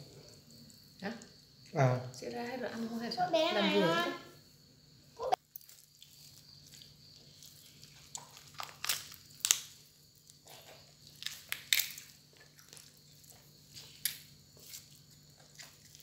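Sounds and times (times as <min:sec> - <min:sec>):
chicken meat tearing: 0:05.4 - 0:10.4, 0:11.0 - 0:13.0.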